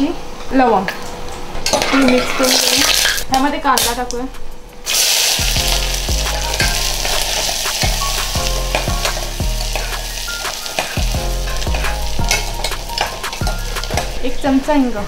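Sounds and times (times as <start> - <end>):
onions sizzling in hot oil: 4.9 - 14.6.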